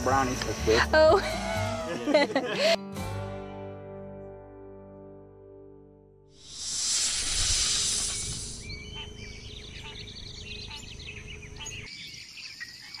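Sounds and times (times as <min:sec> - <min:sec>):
loud hiss: 0:06.4 - 0:08.7
birds chirping and whistling: 0:06.5 - 0:13.0.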